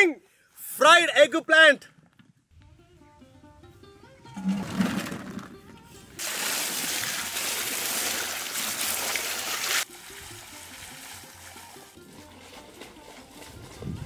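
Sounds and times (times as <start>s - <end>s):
water splashing into metal basin: 6.2s - 11.8s.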